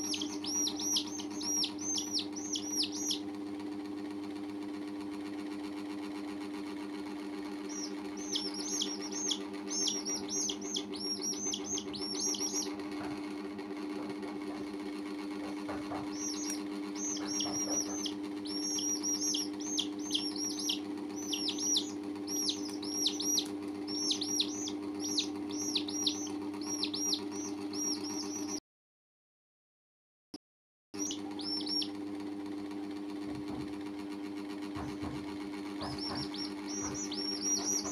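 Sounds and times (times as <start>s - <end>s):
chicks peeping: 0.0s - 3.2s, 7.6s - 13.3s, 15.4s - 28.6s, 31.0s - 32.0s, 34.8s - 37.9s
steady low hum: 0.0s - 3.4s, 7.1s - 28.6s, 34.7s - 37.9s.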